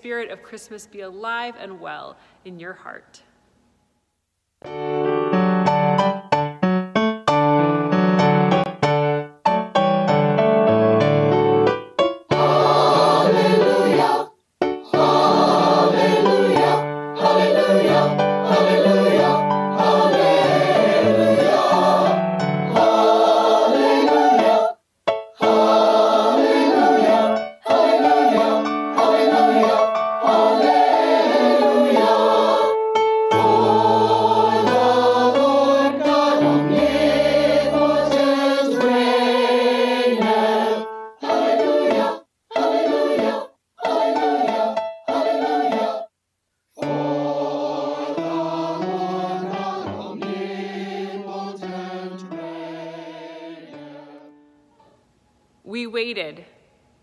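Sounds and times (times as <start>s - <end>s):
choral singing with accompaniment: 12.3s - 46.2s, 46.8s - 55.0s.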